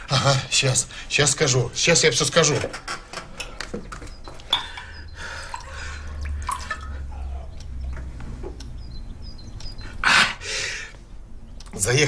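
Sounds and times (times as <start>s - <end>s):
glassy clicks: 2.8s - 10.0s.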